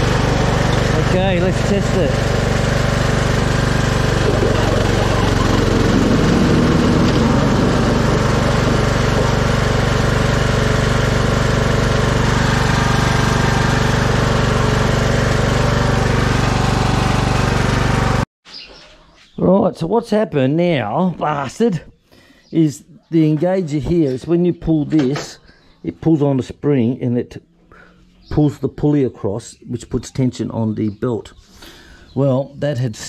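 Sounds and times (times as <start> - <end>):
riding lawn mower engine running: 0.0 - 18.2.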